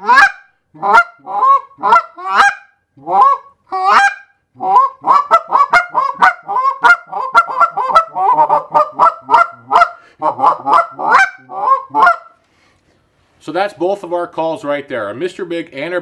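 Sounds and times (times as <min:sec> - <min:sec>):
goose call honks and clucks: 0:00.0 - 0:12.4.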